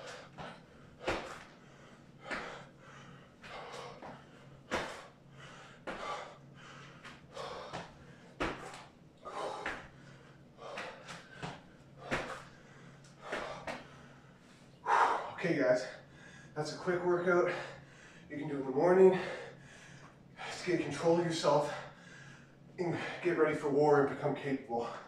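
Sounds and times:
heavy breathing: 0.0 - 18.4, 19.0 - 20.7, 21.6 - 23.4
thumps on exercise mat: 0.3 - 1.5, 3.4 - 5.1, 7.0 - 10.0, 10.7 - 12.5.

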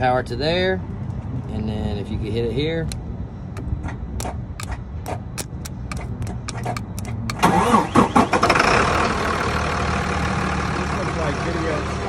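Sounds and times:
loud engine running: 7.3 - 12.0.

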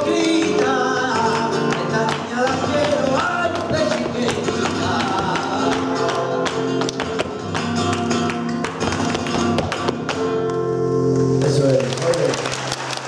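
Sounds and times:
flamenco guitar playing: 0.0 - 11.7.

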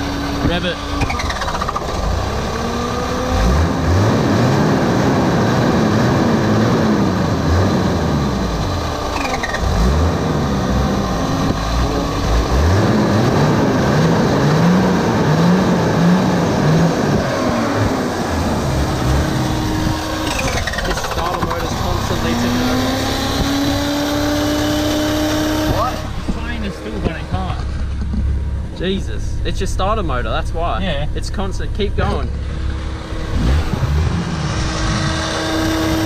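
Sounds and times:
starter motor running: 0.0 - 4.7, 16.9 - 24.2
engine revving: 0.0 - 36.0.

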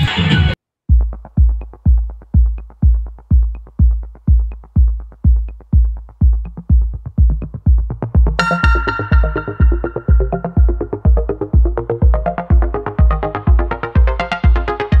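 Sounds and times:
bass kick drum: 0.9 - 15.0.

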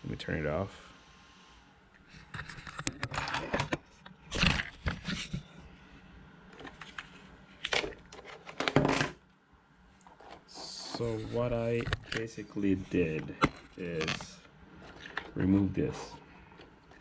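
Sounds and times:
plastic parts clicking and scraping: 2.1 - 5.4, 6.5 - 9.2, 10.0 - 12.4, 13.2 - 17.0.

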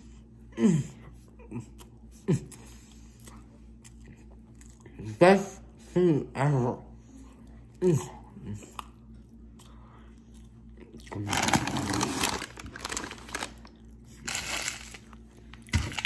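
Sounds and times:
plastic snack bag crinkling: 11.1 - 16.0.

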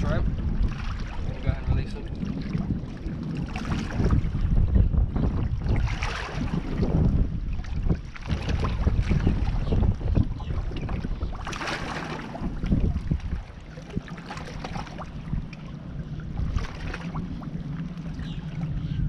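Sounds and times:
steady low hum: 0.0 - 19.0
wind rumbling on microphone: 0.0 - 19.0
water splashing against rocks: 5.2 - 15.6, 16.4 - 17.4.

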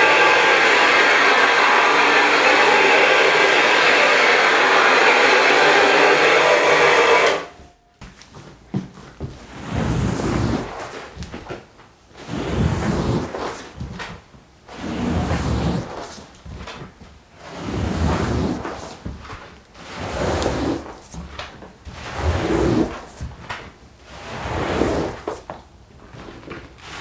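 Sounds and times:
squeegee scraping wet rug: 0.0 - 7.4, 9.2 - 11.6, 12.2 - 27.0
brush scrubbing machine running: 0.0 - 7.6, 22.0 - 23.0.

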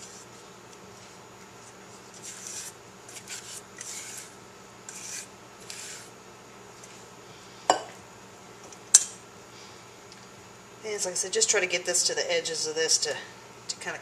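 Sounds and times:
spatula scraping glass bowl: 2.1 - 6.1.

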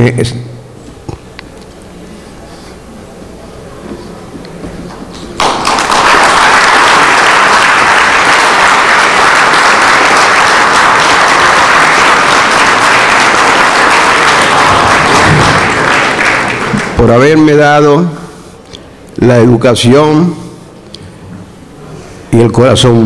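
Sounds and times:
audience applauding: 5.4 - 17.6.

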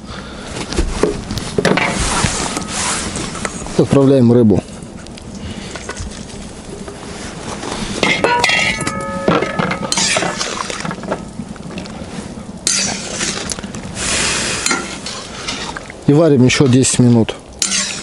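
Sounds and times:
metal bowl clinking on pot: 8.0 - 10.5, 17.6 - 18.0
ringing metal clank: 8.0 - 10.5, 12.7 - 13.1, 17.6 - 18.0.

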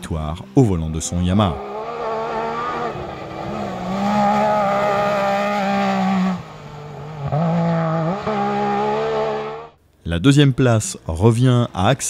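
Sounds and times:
engine at high revs: 1.1 - 9.8.

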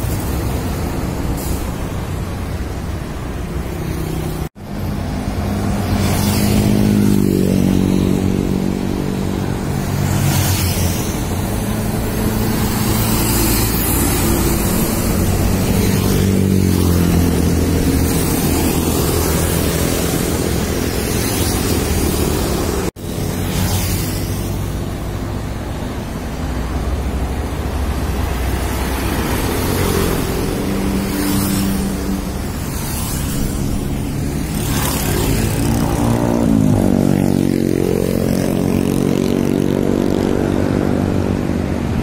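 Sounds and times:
traffic and tyre noise: 0.0 - 42.0.

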